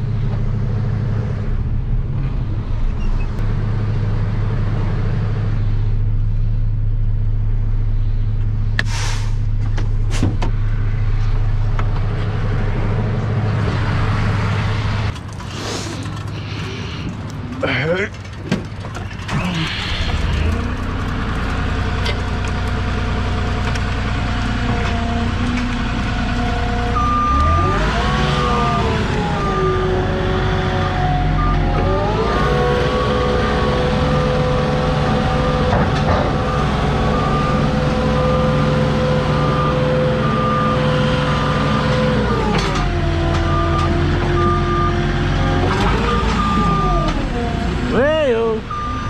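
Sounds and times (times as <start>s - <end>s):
forklift engine running: 0.0s - 49.0s
travel alarm beeping: 43.5s - 45.0s, 48.7s - 49.0s.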